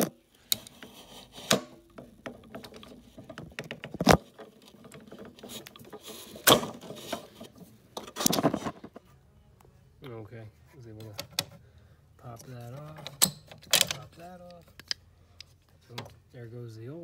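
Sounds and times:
metal clicks and scrapes: 0.0 - 8.9
metal rattle: 0.6 - 8.8.

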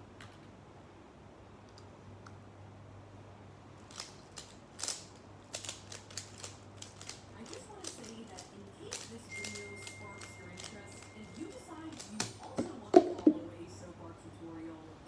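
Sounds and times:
faint steady hum: 0.0 - 15.0
puzzle cube plastic clicks: 3.9 - 12.4.

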